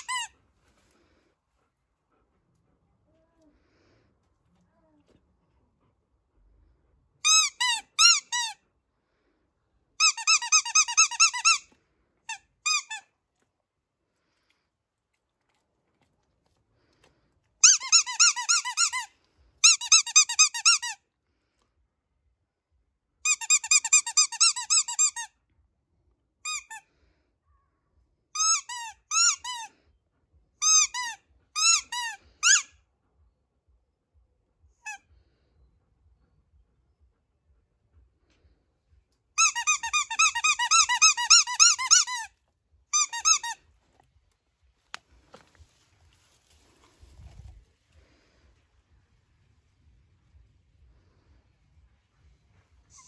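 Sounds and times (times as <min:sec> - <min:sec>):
squeaky dog toy: 0:00.0 - 0:00.4, 0:07.2 - 0:08.6, 0:10.0 - 0:13.1, 0:17.6 - 0:21.0, 0:23.2 - 0:25.4, 0:26.4 - 0:26.9, 0:28.3 - 0:29.7, 0:30.6 - 0:32.8, 0:34.8 - 0:35.1, 0:39.4 - 0:43.7.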